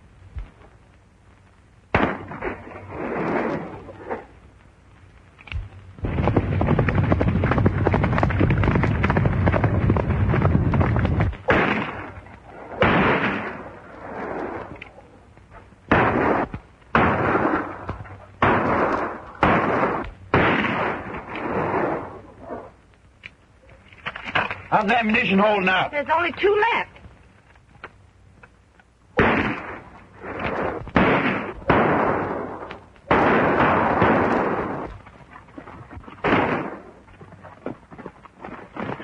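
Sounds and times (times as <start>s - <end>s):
echoing gunshots: 1.9s - 3.8s, 11.4s - 14.4s, 15.9s - 22.2s, 29.2s - 34.9s, 36.2s - 37.0s
rapid overlapping gunfire: 11.5s - 12.0s, 18.4s - 21.8s, 29.2s - 34.9s.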